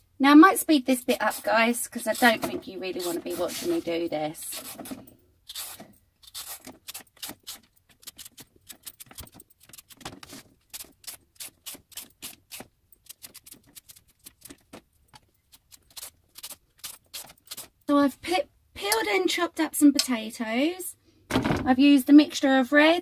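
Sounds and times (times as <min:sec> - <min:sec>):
vegetable peeler scraping parsnips: 0:01.0 - 0:14.6, 0:15.5 - 0:17.8.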